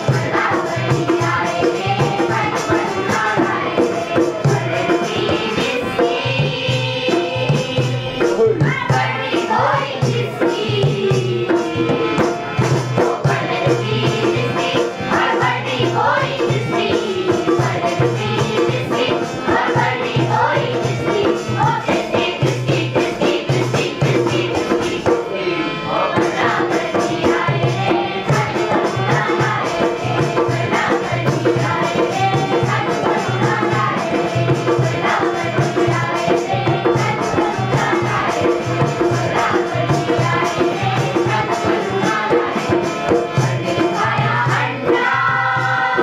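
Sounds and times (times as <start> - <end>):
steady drum beat: 0.0 - 25.3, 26.2 - 46.0
voices singing: 0.0 - 46.0
rattling jingling percussion: 26.1 - 46.0.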